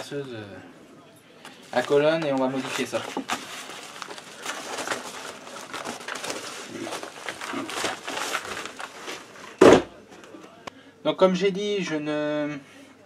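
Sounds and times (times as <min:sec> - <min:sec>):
padded envelopes rustling and crinkling: 0:01.6 - 0:09.8.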